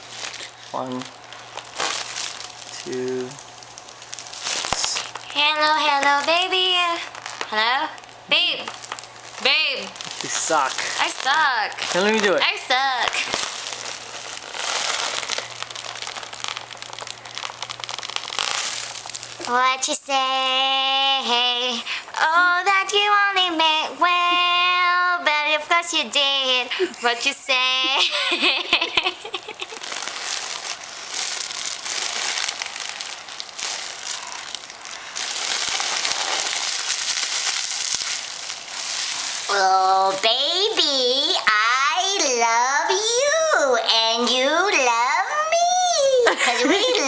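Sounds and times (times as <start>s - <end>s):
helium hissing: 0.0s - 19.5s
foil balloon crinkling: 0.0s - 47.0s.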